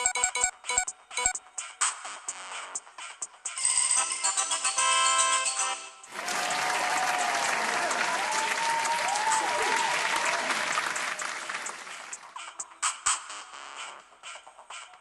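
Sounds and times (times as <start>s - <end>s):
voices cheering: 6.1s - 12.2s
crowd applause: 6.1s - 12.3s.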